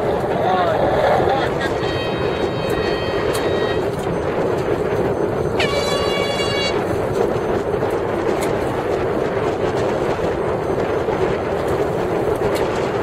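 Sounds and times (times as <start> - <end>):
wind: 0.0 - 13.0
air horn blast: 1.8 - 3.9, 5.6 - 6.8.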